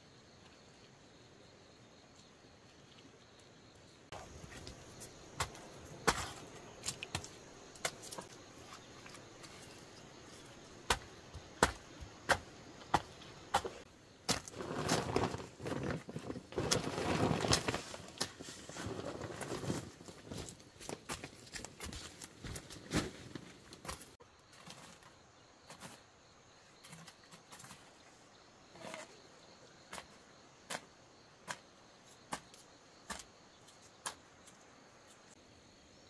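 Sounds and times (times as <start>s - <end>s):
rough rustling or scraping: 13.6s - 26.0s.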